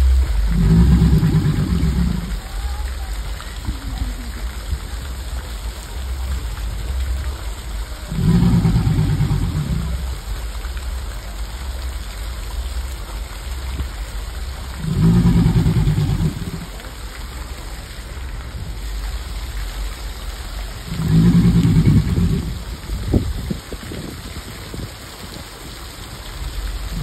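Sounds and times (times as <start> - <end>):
alligator bellowing: 0.0 - 4.6, 8.1 - 10.3, 14.6 - 17.0, 20.8 - 22.8
low steady rumble: 0.0 - 27.0.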